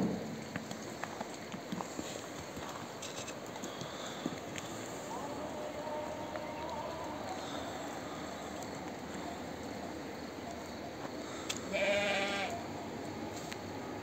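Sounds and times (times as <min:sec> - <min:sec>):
sheep bleating: 0:11.6 - 0:12.6.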